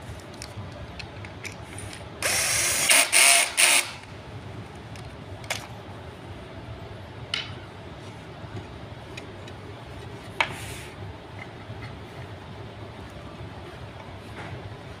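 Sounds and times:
cordless drill driving screw: 0:02.2 - 0:04.0.

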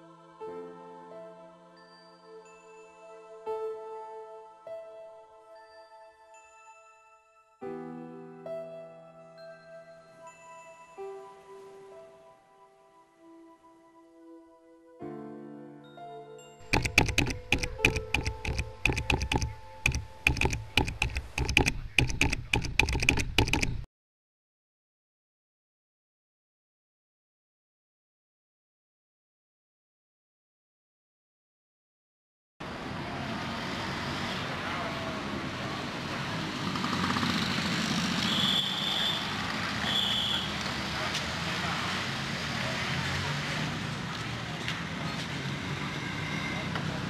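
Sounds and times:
typing on computer keyboard: 0:16.6 - 0:23.9
street traffic rumble: 0:32.6 - 0:47.0.

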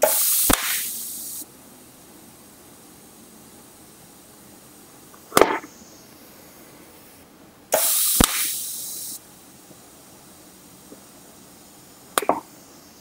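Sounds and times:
sharp click: 0:00.0 - 0:00.9, 0:07.7 - 0:08.6
arc strike crack: 0:00.0 - 0:01.0, 0:05.3 - 0:05.7, 0:07.7 - 0:08.6
welding arc hissing: 0:00.0 - 0:13.0.

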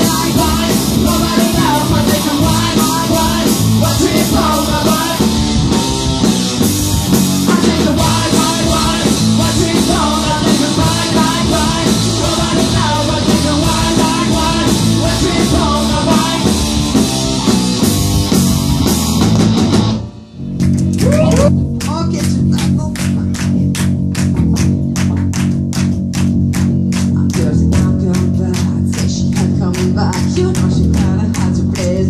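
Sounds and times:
rock band playing live: 0:00.0 - 0:32.0.

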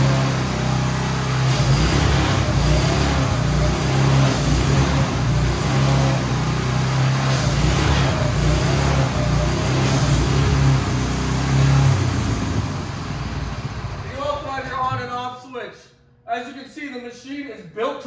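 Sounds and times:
small engine running steadily: 0:00.0 - 0:14.1.

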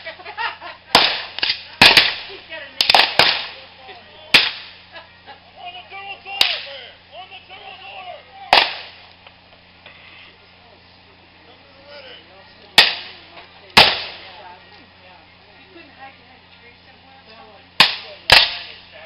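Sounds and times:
muskets firing: 0:00.9 - 0:03.6, 0:04.3 - 0:04.8, 0:06.4 - 0:06.8, 0:08.5 - 0:09.1, 0:12.8 - 0:14.4, 0:17.8 - 0:18.9.

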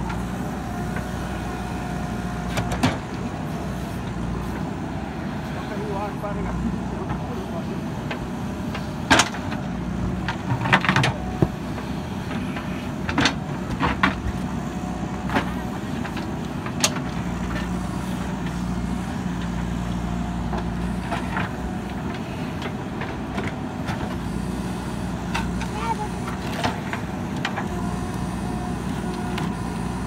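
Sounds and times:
diesel engine running: 0:00.0 - 0:30.0
digger bucket clacks and knocks: 0:08.1 - 0:11.6.

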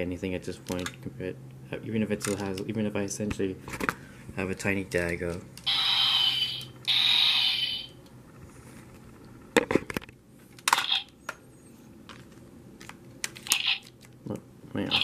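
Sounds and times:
plastic toy rubbing hiss: 0:05.8 - 0:07.9.

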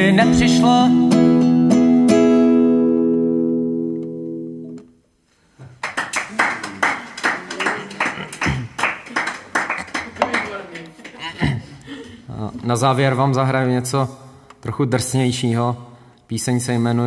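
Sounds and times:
people clapping: 0:05.6 - 0:12.0.

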